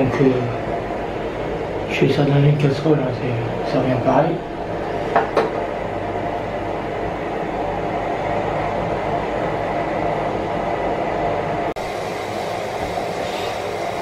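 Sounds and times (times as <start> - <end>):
gas stove burner hissing: 0.0 - 14.0.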